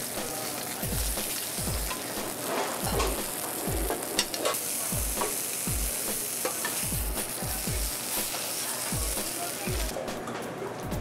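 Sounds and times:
fish sizzling in oil: 0.0s - 10.0s
background music with deep beat: 0.1s - 4.0s, 5.0s - 5.9s, 6.9s - 8.0s, 8.9s - 11.0s.

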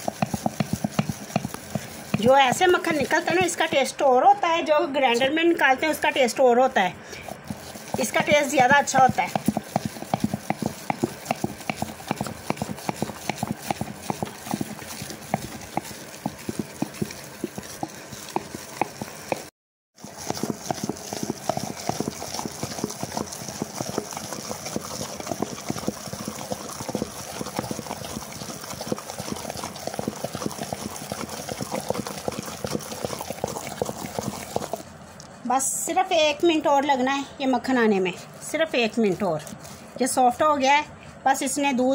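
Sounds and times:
wet churning of cream: 0.0s - 35.4s, 38.0s - 40.6s.

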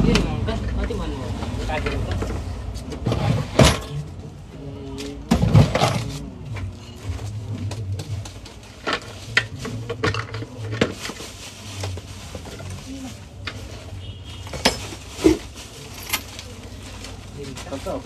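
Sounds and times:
appliance parts clinking and knocking: 8.1s - 11.2s, 14.5s - 16.5s.

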